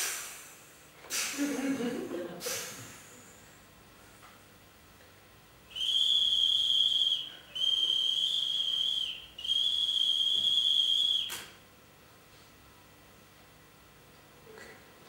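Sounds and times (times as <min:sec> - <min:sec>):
high-pitched whistle blasts: 0:05.7 - 0:11.6.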